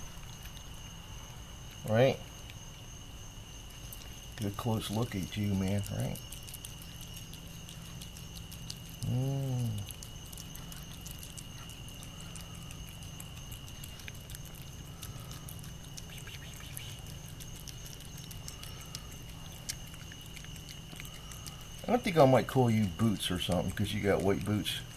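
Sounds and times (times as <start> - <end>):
cat chewing food: 0.0 - 24.9
night insects trilling: 0.0 - 24.9
man humming: 9.0 - 9.8.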